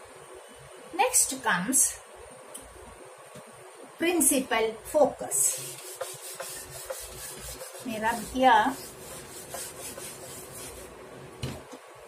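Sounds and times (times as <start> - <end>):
eraser rubbing on whiteboard: 5.5 - 10.9.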